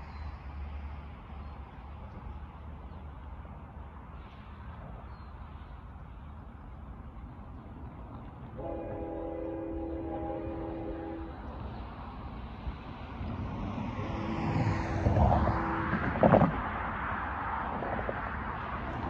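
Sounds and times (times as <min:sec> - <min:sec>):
locomotive air horn chord: 0:08.6 - 0:11.5.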